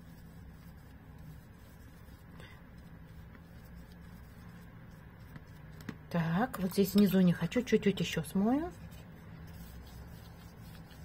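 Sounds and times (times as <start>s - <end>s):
brush swishing on paper: 0.0s - 6.8s, 8.3s - 11.0s
faint low hum: 0.0s - 11.0s.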